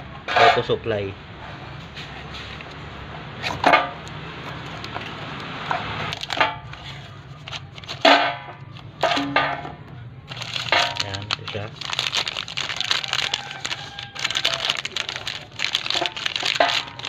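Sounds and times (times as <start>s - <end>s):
cardboard flaps scraping and creaking: 4.5s - 8.1s, 10.3s - 17.0s.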